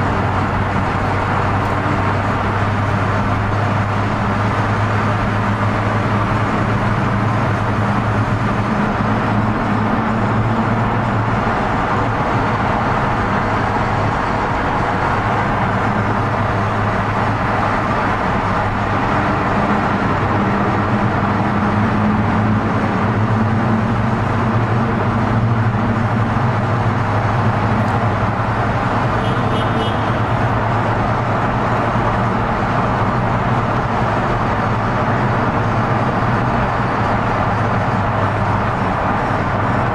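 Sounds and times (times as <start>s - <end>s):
car engine and road noise: 0.0s - 39.9s.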